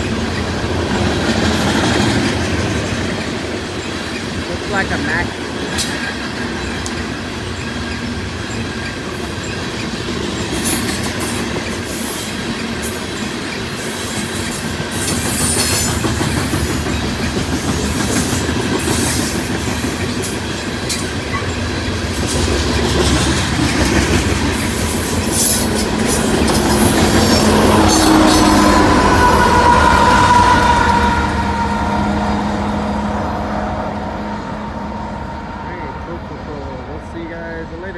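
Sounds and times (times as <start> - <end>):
diesel locomotive engine tones: 0.0 - 37.9
freight train wheels on rails: 0.0 - 37.9
high-pitched wheel squeal: 26.7 - 36.1.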